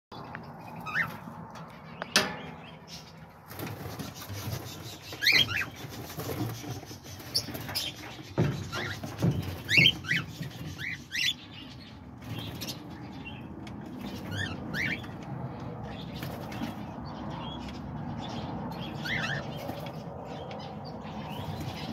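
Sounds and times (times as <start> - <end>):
parrots chirping: 0.6 - 1.3, 4.0 - 11.6, 14.1 - 15.1.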